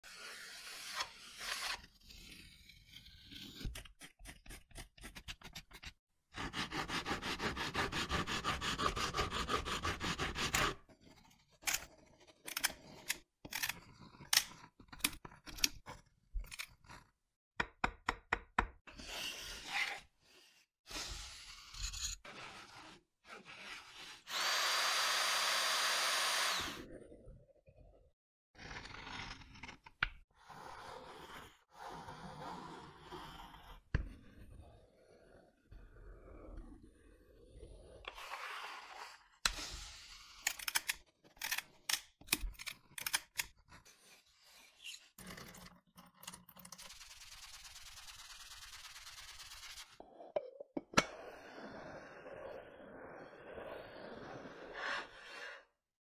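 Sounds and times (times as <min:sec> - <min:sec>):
hand saw cutting wood: 0:06.4 - 0:10.8
small power tool running: 0:24.3 - 0:26.8.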